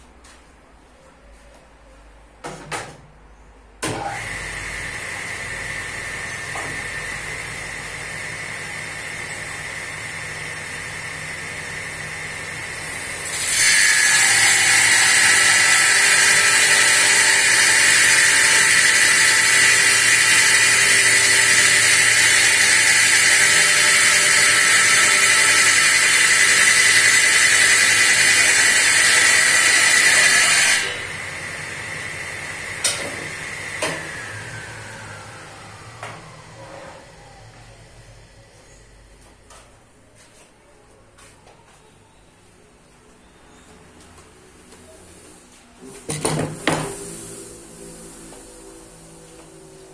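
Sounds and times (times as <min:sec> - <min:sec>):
table saw cutting wood: 0:03.9 - 0:38.2, 0:46.1 - 0:49.8
table saw idle hum: 0:03.9 - 0:39.0, 0:46.2 - 0:49.9.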